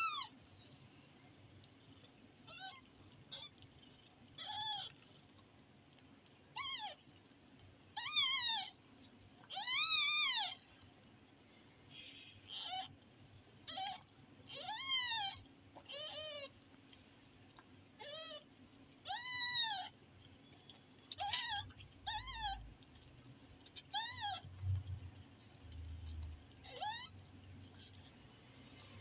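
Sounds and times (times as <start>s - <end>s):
kittens mewing: 21.1s - 22.7s.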